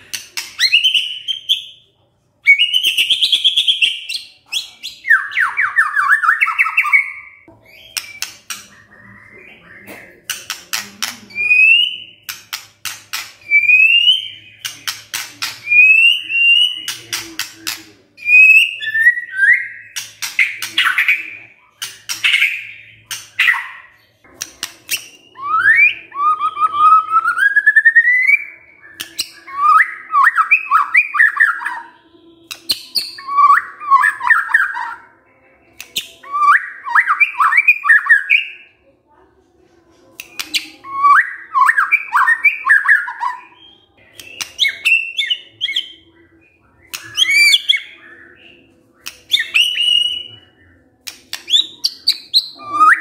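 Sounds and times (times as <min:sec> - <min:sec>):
bird singing whistles: 0:13.4 - 0:14.8, 0:24.9 - 0:35.0, 0:40.4 - 0:50.6, 0:51.3 - 0:53.0.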